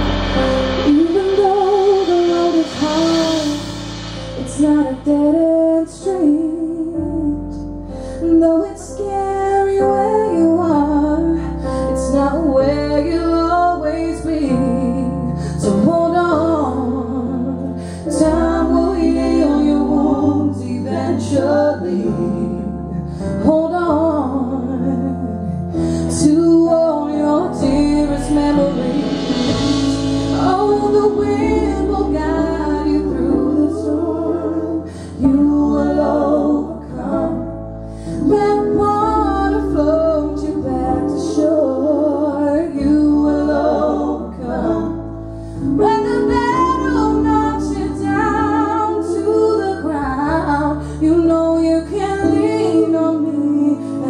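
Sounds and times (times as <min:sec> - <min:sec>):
amplified band: 0:00.0 - 0:06.5, 0:27.2 - 0:48.8
woman singing into microphone: 0:00.0 - 0:45.0, 0:45.7 - 0:54.0.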